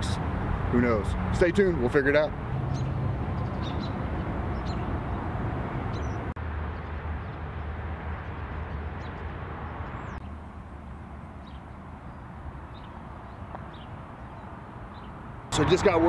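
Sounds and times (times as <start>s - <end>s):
low rumble of traffic: 0.0s - 16.0s
small birds chirping: 2.6s - 10.4s, 11.3s - 16.0s.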